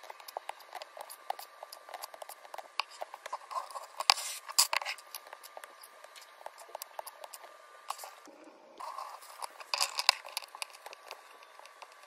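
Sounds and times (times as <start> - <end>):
plastic cubes clicking and rattling: 8.9 - 12.0.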